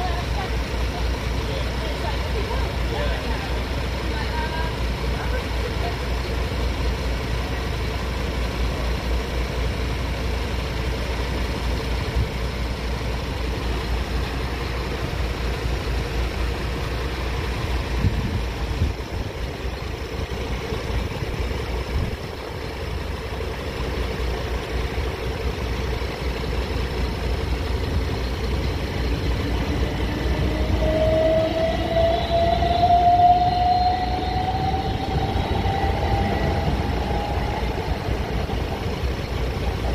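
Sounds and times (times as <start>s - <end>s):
low train rumble: 0.0s - 39.9s
train motor whine: 27.8s - 39.9s.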